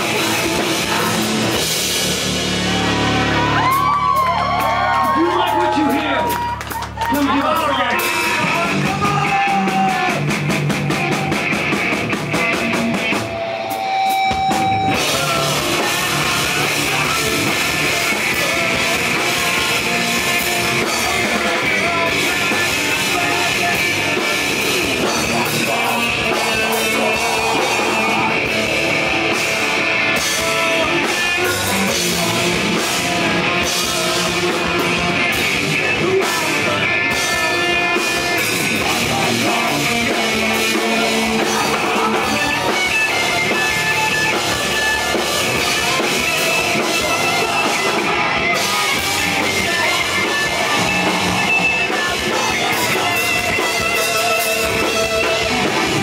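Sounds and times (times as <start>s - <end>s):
bass: 0.0s - 56.0s
drum kit: 0.0s - 56.0s
electric guitars: 0.0s - 56.0s
person singing into microphone: 14.9s - 29.5s, 30.2s - 56.0s.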